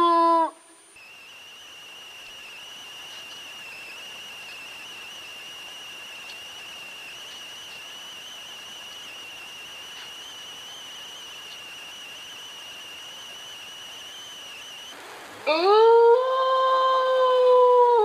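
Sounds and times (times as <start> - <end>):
high-pitched whining tone: 0.0 - 18.0
faint hiss: 0.4 - 17.2
wolf howling: 15.5 - 18.0.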